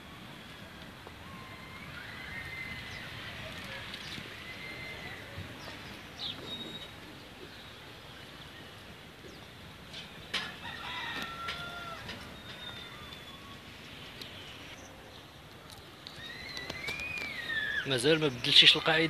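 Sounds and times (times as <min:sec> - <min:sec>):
small birds chirping: 0:00.4 - 0:09.8, 0:12.2 - 0:19.0
rooster crowing: 0:10.4 - 0:13.1.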